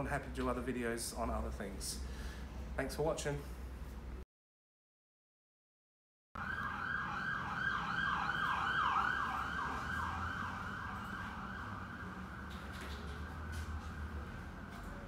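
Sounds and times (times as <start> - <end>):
siren yelping: 6.4 - 12.5.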